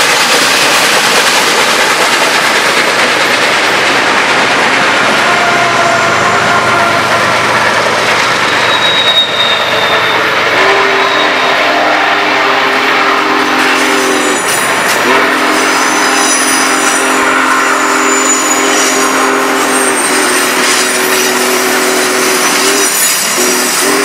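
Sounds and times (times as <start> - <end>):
rumble of passing train cars: 0.0 - 24.0
train chime horn blasts: 5.2 - 7.4, 8.5 - 24.0
faint high wheel squeal: 8.3 - 11.6, 15.7 - 17.0, 17.6 - 23.8.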